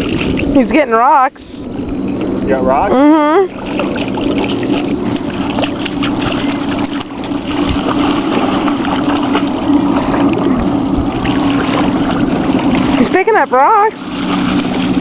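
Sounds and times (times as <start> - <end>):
steady low hum: 0.0 - 15.0
dog splashing in water: 3.5 - 15.0.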